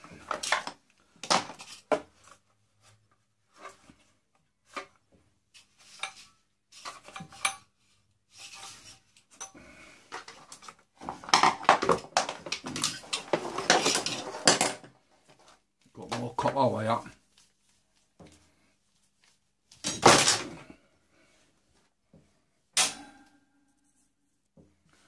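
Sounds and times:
plastic and metal parts clattering: 0.0 - 2.4, 8.4 - 16.4, 19.8 - 20.7.

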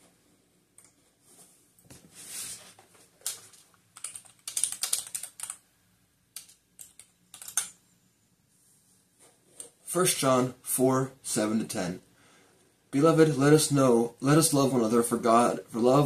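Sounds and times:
typing on keyboard: 3.2 - 5.6, 6.4 - 7.8.

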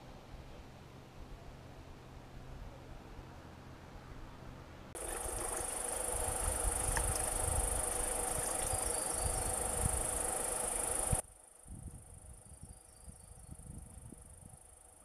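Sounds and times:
wind rumbling on microphone: 5.0 - 14.7
insects buzzing: 5.0 - 15.0.

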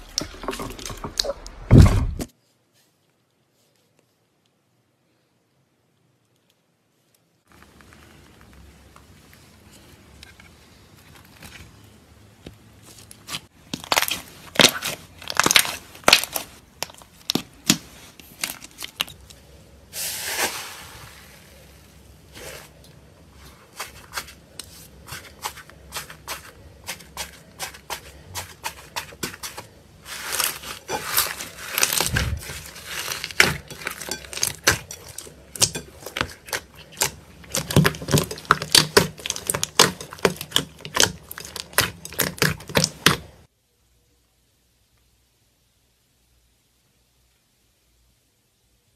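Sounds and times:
slime clicking and popping: 36.9 - 43.3.

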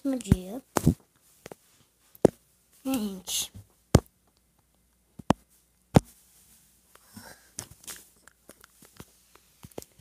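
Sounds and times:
faint rustles and clicks: 5.4 - 10.0.

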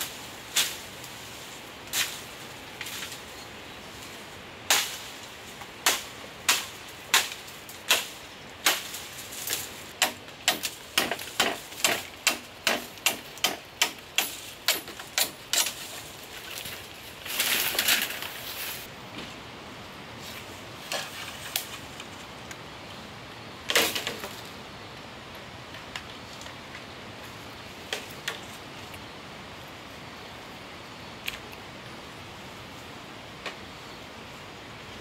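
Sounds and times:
knife chopping bamboo: 10.0 - 15.7.

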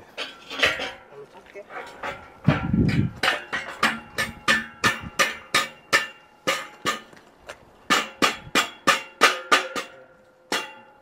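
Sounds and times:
metal tubing knocking clanks: 1.7 - 7.2.

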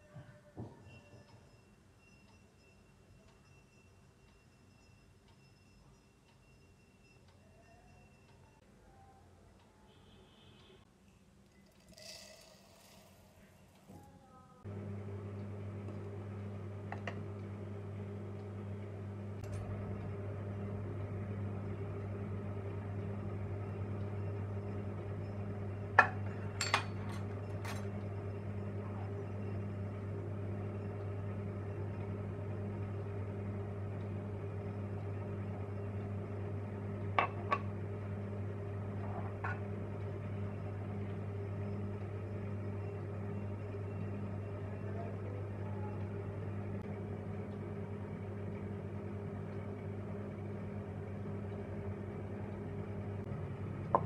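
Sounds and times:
low electrical hum: 6.5 - 54.0
clinks against steel bowl: 26.0 - 27.8.

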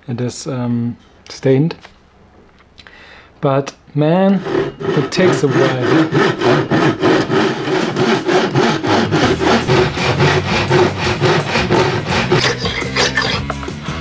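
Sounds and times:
person speaking: 3.4 - 6.8
hand saw cutting wood: 4.3 - 13.7.

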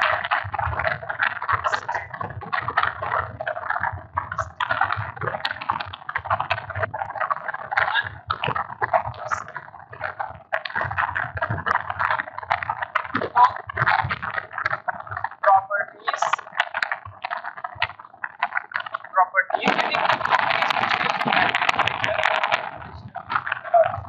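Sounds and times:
man lecturing: 1.7 - 2.1, 15.5 - 16.4, 19.2 - 20.3.

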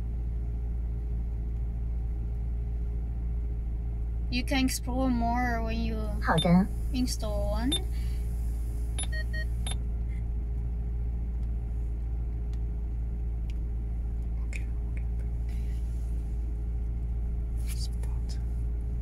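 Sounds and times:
car engine idling: 0.0 - 19.0
short touchscreen beeps: 9.0 - 9.4.

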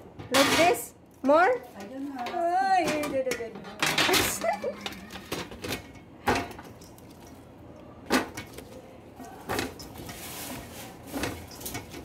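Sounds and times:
soft rustling: 8.6 - 12.0.

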